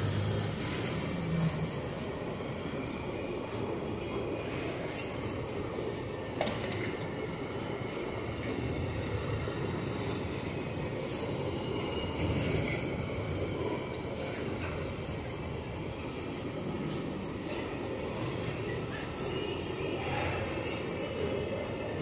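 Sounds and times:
steel wheels rumbling on rail: 0.0s - 22.0s
faint high wheel squeal: 10.1s - 21.1s.

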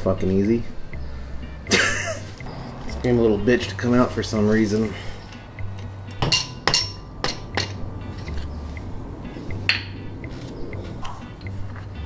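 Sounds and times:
metal-on-metal clinks: 5.8s - 7.8s.

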